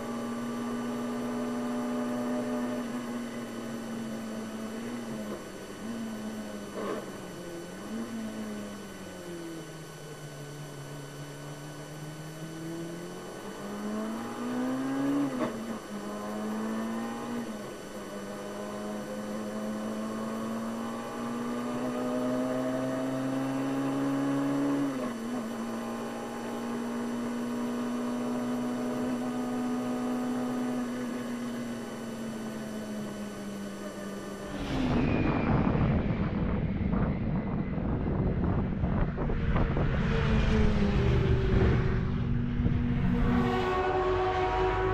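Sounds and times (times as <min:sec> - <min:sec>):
race car engine: 0:00.0 - 0:44.9.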